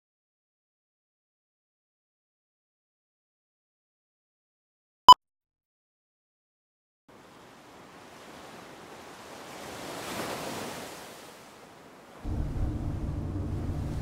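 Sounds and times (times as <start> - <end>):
sea waves surging against rocks: 7.2 - 14.0.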